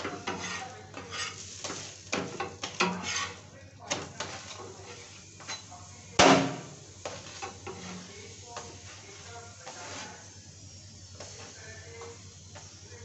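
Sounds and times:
spatula scraping pan: 0.0s - 5.7s, 6.4s - 10.4s
faint sizzling: 0.0s - 13.0s.

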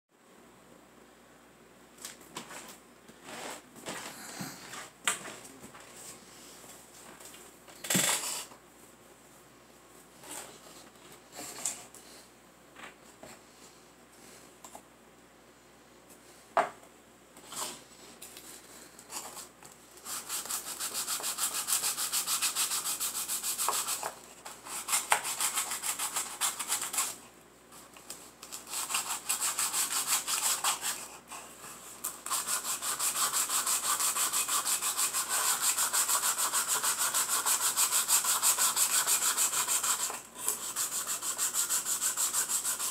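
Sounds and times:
wood rasping on sandpaper: 20.0s - 27.2s, 28.6s - 31.2s, 32.2s - 42.9s.

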